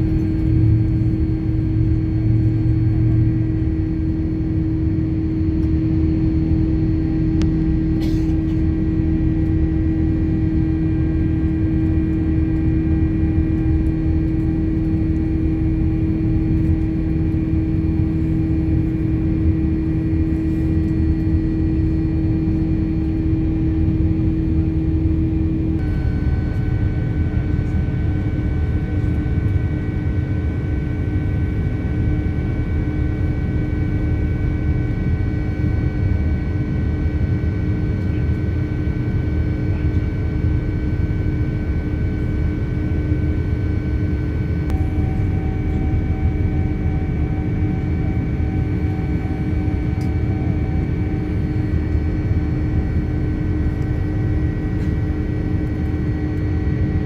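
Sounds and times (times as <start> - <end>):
constant whining tones: 0.0 - 37.3, 38.0 - 57.0
airplane cabin engine rumble: 0.0 - 57.0
faint tone: 25.8 - 28.4, 44.7 - 48.1.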